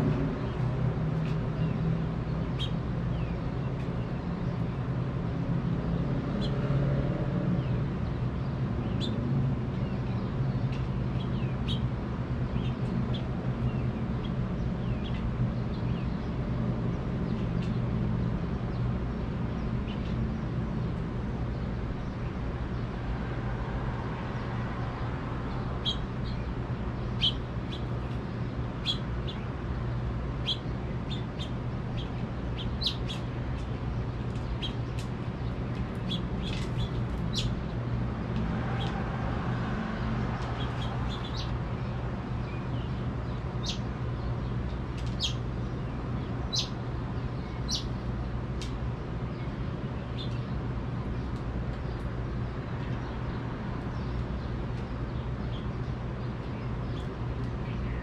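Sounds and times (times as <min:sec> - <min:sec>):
finches chirping: 0:02.4 - 0:04.6, 0:08.4 - 0:16.3, 0:25.6 - 0:29.6, 0:30.4 - 0:37.7, 0:40.4 - 0:41.6, 0:42.4 - 0:48.1, 0:49.3 - 0:51.2.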